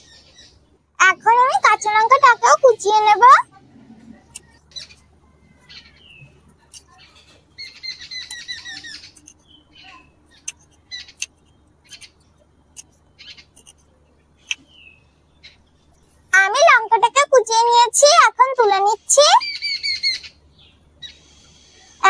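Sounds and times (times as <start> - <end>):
bird calling: 19.1 - 22.0.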